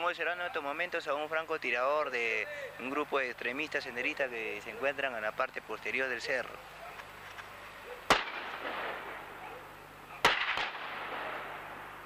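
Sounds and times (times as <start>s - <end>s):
gunshots echoing off hills: 8.1s - 9.3s, 10.2s - 12.0s.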